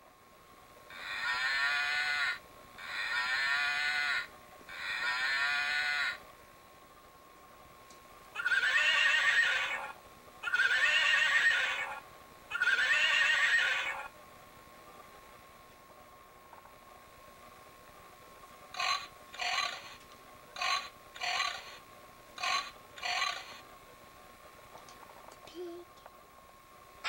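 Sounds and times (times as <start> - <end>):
recorded cow moo from toy: 0.9 - 6.2, 8.4 - 14.0
recorded horse neigh from toy: 0.9 - 6.2, 8.4 - 14.1, 18.8 - 20.0, 20.6 - 21.8, 22.4 - 23.6.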